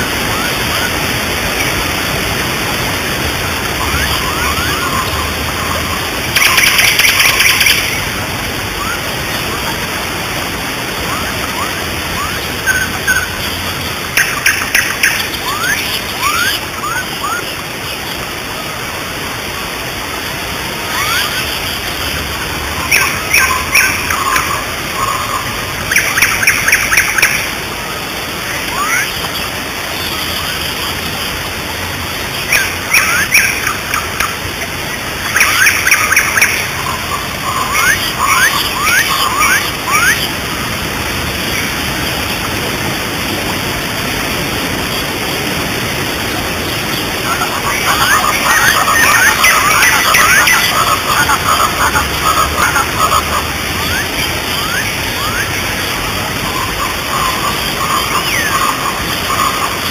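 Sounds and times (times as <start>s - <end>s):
waterfall rushing: 0.0s - 59.9s
birds chirping: 32.2s - 40.8s, 43.8s - 59.9s.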